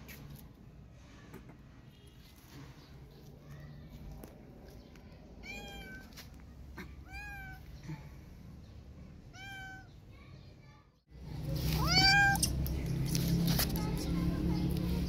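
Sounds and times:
cat meowing: 5.4s - 6.0s, 7.0s - 7.6s, 9.3s - 9.9s, 11.8s - 12.5s.

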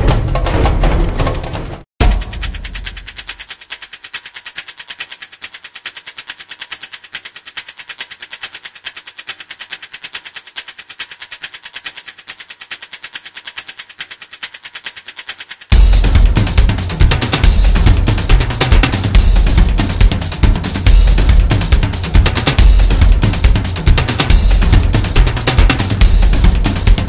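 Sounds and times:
fast electronic clicks: 2.0s - 12.4s.

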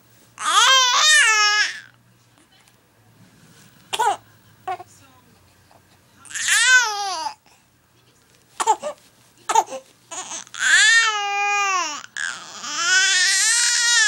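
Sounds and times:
baby crying: 0.4s - 1.9s, 6.3s - 7.4s, 8.6s - 14.0s.

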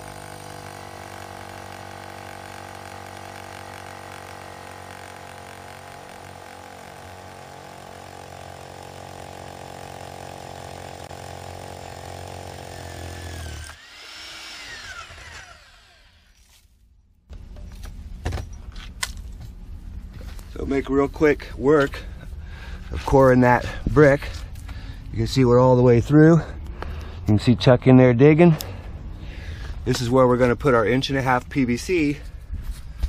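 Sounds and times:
core drill cutting brick: 0.0s - 16.4s
drill spinning down whine: 0.0s - 16.4s.

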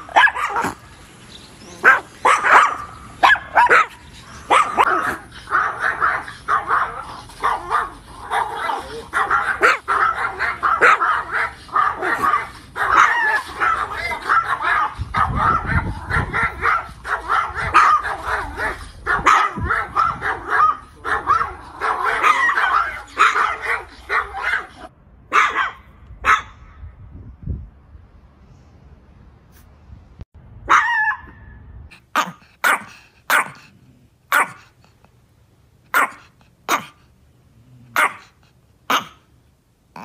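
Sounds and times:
small dogs barking and snarling: 0.0s - 26.6s, 30.7s - 40.0s.

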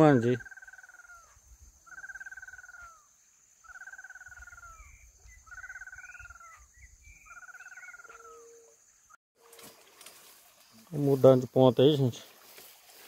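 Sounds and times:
faint higher chirps: 0.0s - 9.2s
animal trilling calls: 1.9s - 6.7s.

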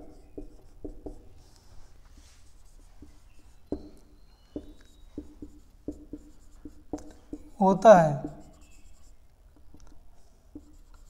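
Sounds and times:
marker tip tapping whiteboard: 0.0s - 1.2s, 3.0s - 7.5s, 9.6s - 11.0s
marker writing on whiteboard: 0.0s - 11.0s.

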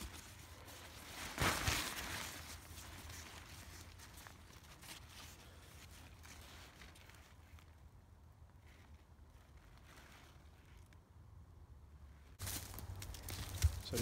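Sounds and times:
tarp fabric rustling: 0.0s - 11.0s.

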